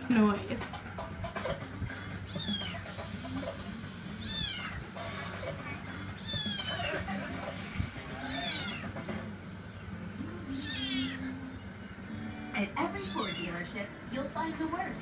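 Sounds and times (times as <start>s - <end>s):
kitten meowing: 4.2s - 4.8s, 6.2s - 6.9s, 8.2s - 8.9s, 10.6s - 11.2s, 13.0s - 13.6s.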